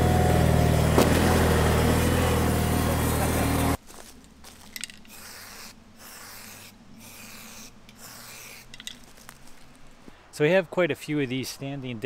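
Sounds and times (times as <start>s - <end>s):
aerosol paint spraying: 5.0s - 9.2s.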